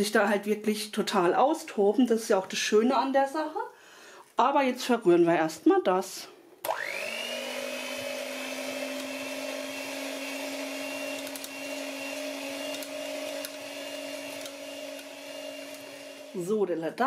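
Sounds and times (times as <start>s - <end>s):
electric hand mixer running: 6.6s - 16.9s.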